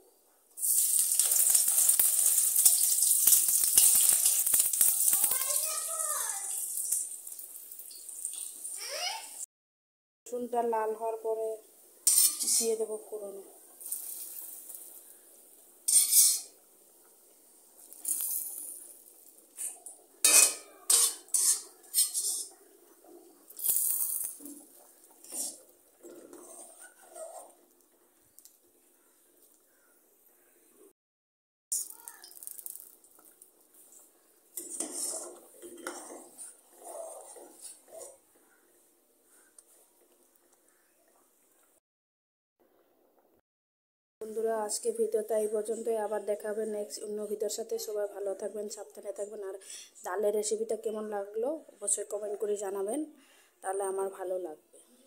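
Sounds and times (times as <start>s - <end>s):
hot oil hissing: 0.6s - 8.8s, 31.7s - 33.2s
garlic sizzling in hot oil: 0.6s - 9.4s, 12.0s - 22.5s, 23.5s - 27.2s, 31.7s - 36.6s
spatula scraping a wok: 12.0s - 12.8s, 15.9s - 16.6s, 19.6s - 22.6s, 25.2s - 27.6s, 34.6s - 38.2s.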